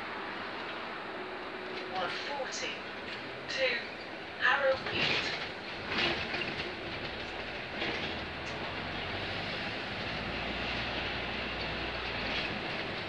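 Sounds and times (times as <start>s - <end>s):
bus engine humming: 0.0s - 13.0s
bus body rattling: 2.9s - 13.0s.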